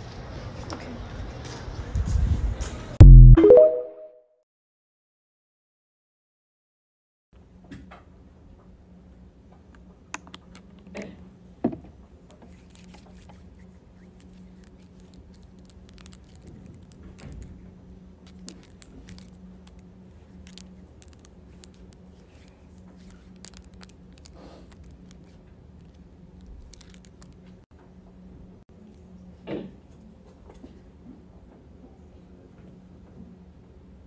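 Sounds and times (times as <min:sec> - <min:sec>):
low hum: 0:03.0 - 0:03.7.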